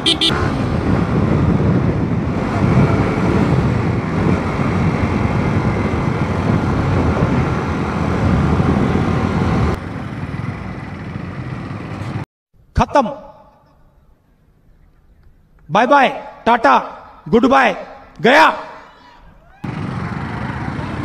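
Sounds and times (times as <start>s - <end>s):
wind noise: 0.0s - 10.7s
motorcycle engine: 0.0s - 12.2s, 19.7s - 21.0s
road traffic hum: 0.0s - 12.3s, 19.4s - 21.0s.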